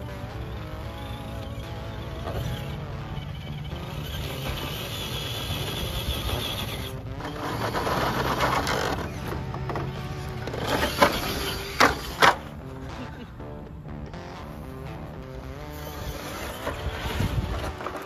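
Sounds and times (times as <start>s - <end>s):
electric motor whining: 0.0s - 18.0s
toy truck knocking as it tumbles: 1.0s - 2.7s, 3.4s - 12.5s.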